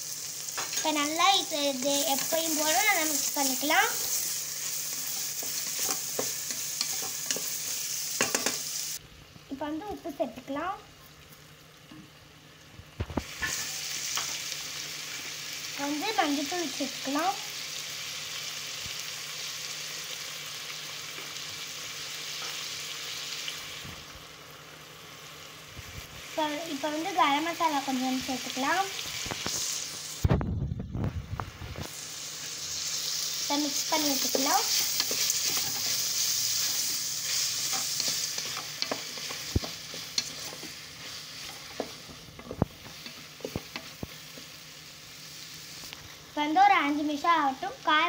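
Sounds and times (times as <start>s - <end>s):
vegetables sizzling in oil: 0.0s - 48.0s
spoon stirring: 4.0s - 8.6s, 34.3s - 44.0s.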